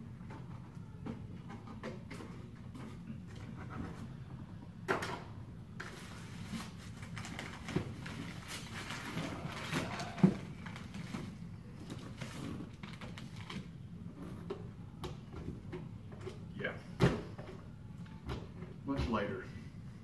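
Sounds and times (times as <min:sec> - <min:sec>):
plastic packaging rustling: 0:05.8 - 0:13.7.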